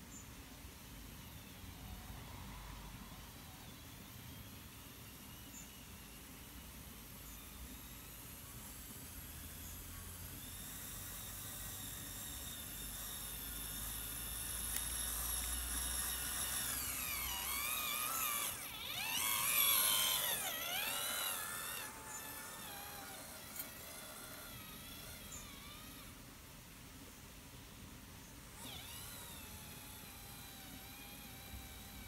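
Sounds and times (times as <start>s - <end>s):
model tractor motor whining: 5.4s - 26.4s, 28.4s - 32.0s.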